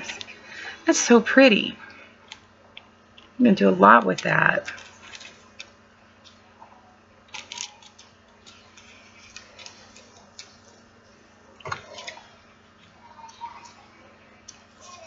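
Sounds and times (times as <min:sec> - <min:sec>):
plastic packets clicking and crinkling: 0:04.2 - 0:06.4, 0:07.3 - 0:10.8.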